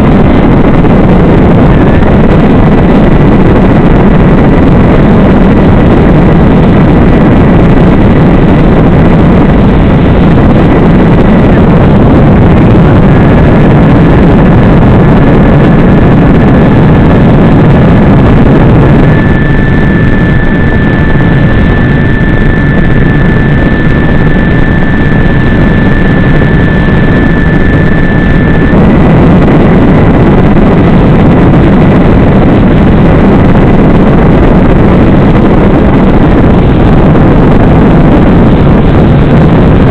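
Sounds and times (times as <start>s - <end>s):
electric motor and propeller noise: 0.0s - 39.9s
wind rushing: 0.0s - 39.9s.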